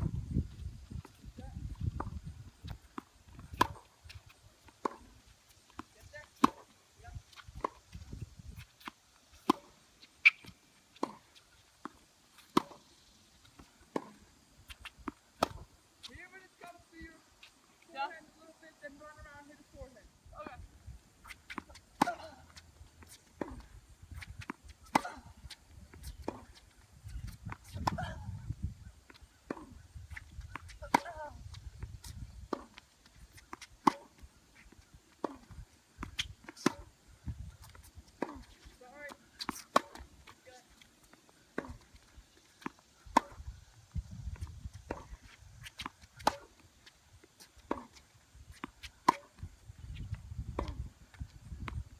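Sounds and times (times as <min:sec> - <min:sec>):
tennis balls bouncing on court: 0:00.9 - 0:17.2, 0:21.2 - 0:28.3, 0:29.0 - 0:43.7, 0:44.3 - 0:51.9
tennis balls struck with racquets: 0:01.9 - 0:06.8, 0:08.6 - 0:12.9, 0:13.5 - 0:16.4, 0:21.2 - 0:26.6, 0:27.3 - 0:28.2, 0:29.4 - 0:31.4, 0:32.0 - 0:37.0, 0:37.6 - 0:41.9, 0:42.6 - 0:43.6, 0:44.4 - 0:51.0.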